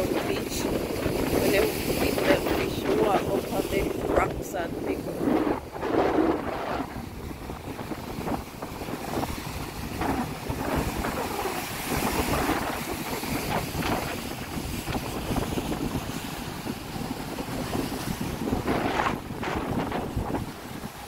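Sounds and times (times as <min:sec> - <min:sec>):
waves washing against rocks: 0:00.0 - 0:21.0
wind buffeting microphone: 0:00.0 - 0:21.0.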